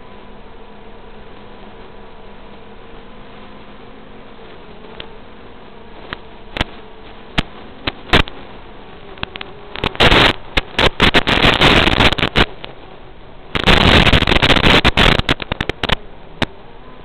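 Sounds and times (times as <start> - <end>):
drone motors buzzing: 0.0 - 17.0
radio static crackles and pops: 0.0 - 17.0.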